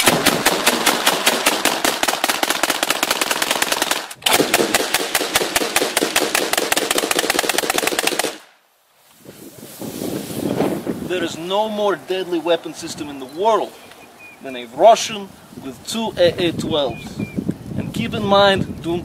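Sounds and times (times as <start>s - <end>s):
automatic shotgun bursts: 0.0s - 8.5s.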